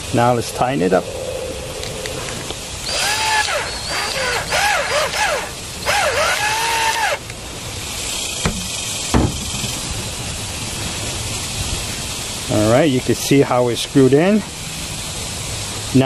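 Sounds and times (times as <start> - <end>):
cordless drill motor whine: 2.8 - 7.3.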